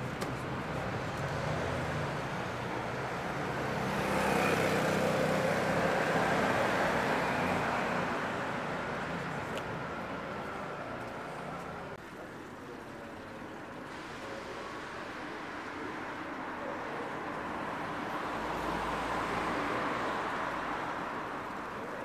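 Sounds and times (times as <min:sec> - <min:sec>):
vehicle passing: 0:00.7 - 0:10.6.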